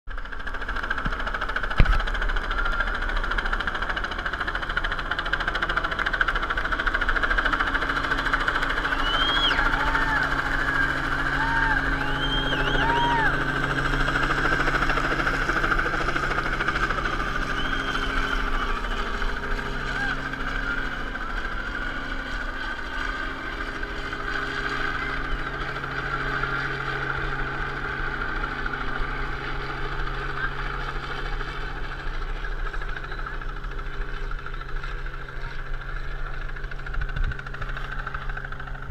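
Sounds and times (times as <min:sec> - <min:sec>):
engine drone: 0:00.1 - 0:38.9
spectators cheering: 0:08.1 - 0:21.6.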